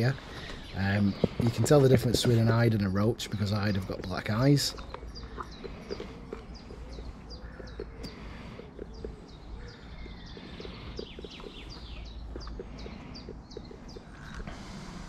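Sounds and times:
songbird chirping: 0:00.0 - 0:15.0.

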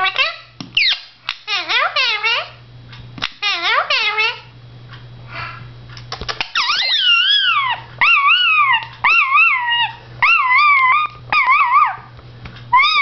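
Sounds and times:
parakeet whistled calls: 0:00.8 - 0:01.1, 0:06.5 - 0:12.0, 0:12.7 - 0:13.0
parakeet clicks: 0:06.0 - 0:06.8.

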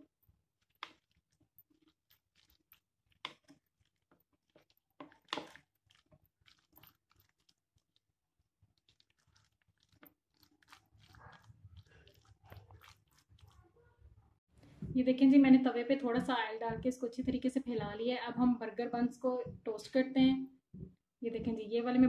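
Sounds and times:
food squishing: 0:00.0 - 0:14.0.

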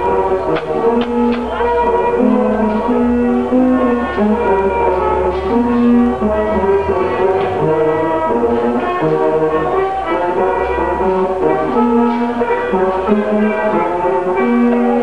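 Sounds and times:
brass instruments playing melody: 0:00.0 - 0:15.0
low bass: 0:00.0 - 0:15.0.

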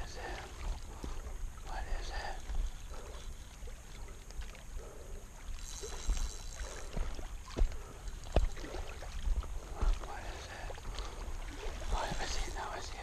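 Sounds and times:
fishing rod and reel handling: 0:05.6 - 0:08.7.

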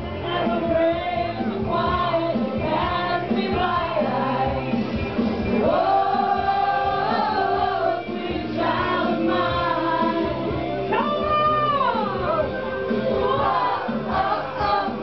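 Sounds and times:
steady bass line: 0:00.0 - 0:15.0.

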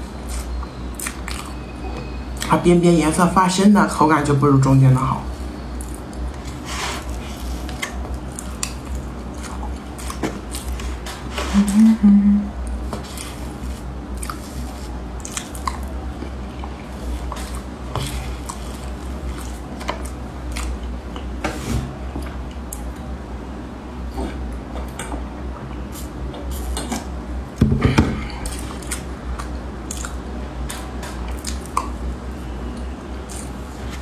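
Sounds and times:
steady low hum: 0:00.0 - 0:34.0
person humming: 0:11.5 - 0:12.6
mouth chewing: 0:12.7 - 0:20.9, 0:28.4 - 0:32.0.

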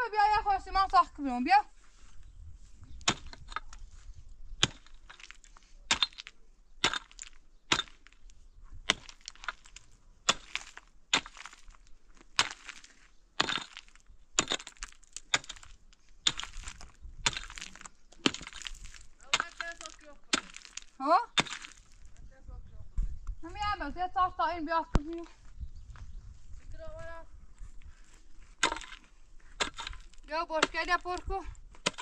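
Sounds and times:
loose stone rattling: 0:02.9 - 0:22.2, 0:28.4 - 0:32.0
pickaxe striking rock: 0:03.0 - 0:03.7, 0:04.6 - 0:08.2, 0:08.9 - 0:22.0, 0:28.6 - 0:32.0.

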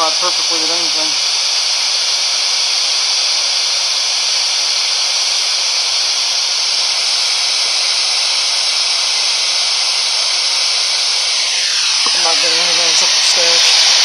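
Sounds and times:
radio static hiss: 0:00.0 - 0:01.2, 0:06.9 - 0:14.0.

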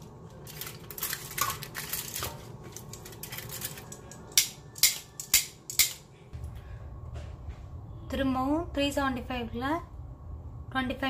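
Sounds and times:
aluminium foil crinkling: 0:00.0 - 0:05.3.

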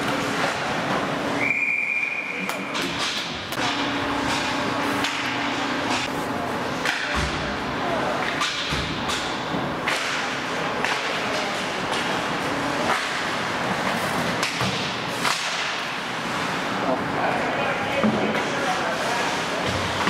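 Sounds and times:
hockey sticks and puck clacking: 0:02.0 - 0:06.1, 0:06.7 - 0:07.4, 0:08.2 - 0:16.5.

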